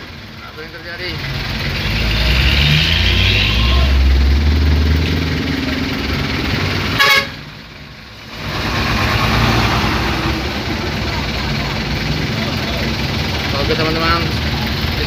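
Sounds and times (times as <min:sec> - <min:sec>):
heavy engine rumble: 0:00.0 - 0:15.0
vehicle engines running: 0:00.0 - 0:15.0
car horn toot: 0:06.9 - 0:07.5.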